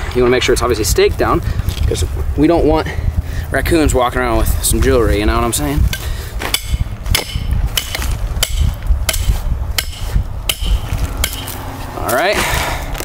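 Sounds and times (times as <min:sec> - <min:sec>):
hammer striking metal stake: 0:05.9 - 0:11.6.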